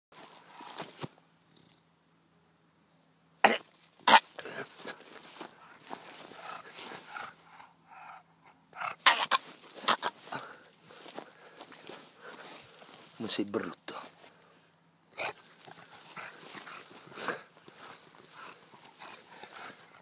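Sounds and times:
dog snorting and grunting: 0:03.4 - 0:05.0, 0:06.1 - 0:10.5, 0:15.1 - 0:20.0.

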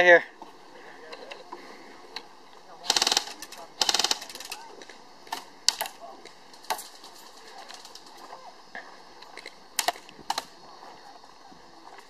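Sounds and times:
airsoft gunshots: 0:02.8 - 0:04.6.

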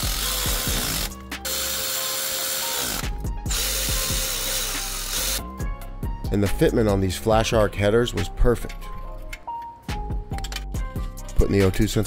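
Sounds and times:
electric ratchet motor whine: 0:00.0 - 0:05.5.

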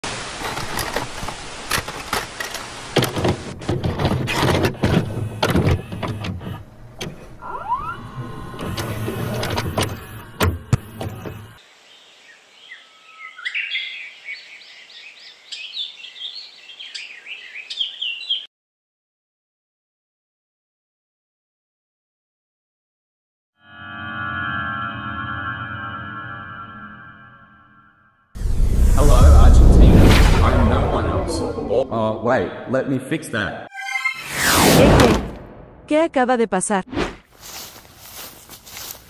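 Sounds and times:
vcr clunks and clicks: 0:01.8 - 0:07.4
birds chirping: 0:09.8 - 0:18.5.

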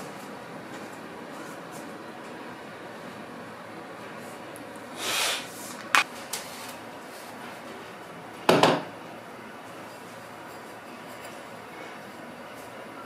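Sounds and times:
dish knocking on shelf: 0:08.5 - 0:08.9.

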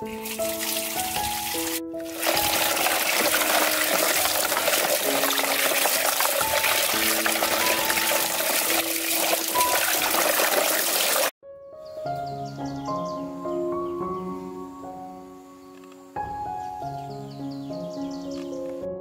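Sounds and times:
rushing water: 0:00.0 - 0:11.3
music with slow held notes: 0:11.5 - 0:19.0.

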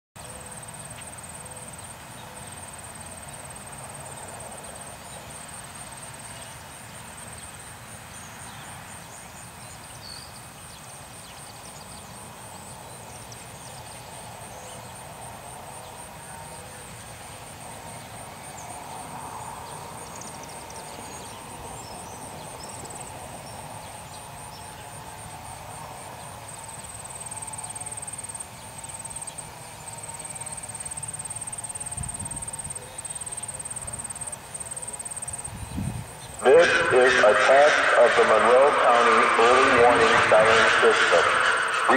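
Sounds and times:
insects trilling: 0:00.2 - 0:41.9
low outdoor rumble: 0:36.4 - 0:41.9.

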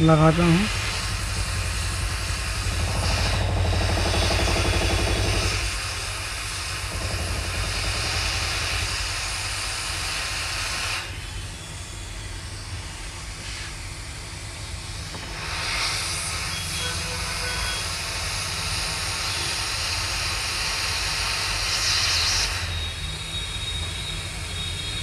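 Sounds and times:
low rumble: 0:00.0 - 0:05.6
hot air blower hiss: 0:00.0 - 0:25.0.

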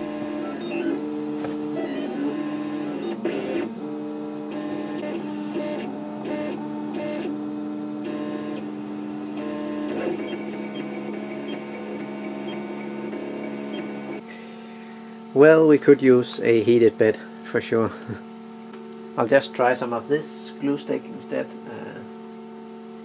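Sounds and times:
stepper motors whining: 0:00.0 - 0:14.2.

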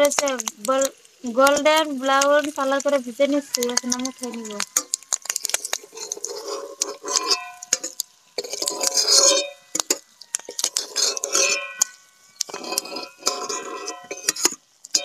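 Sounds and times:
metal spatula scraping wok: 0:02.9 - 0:15.0
spatula clinking on steel plate: 0:04.6 - 0:15.0.

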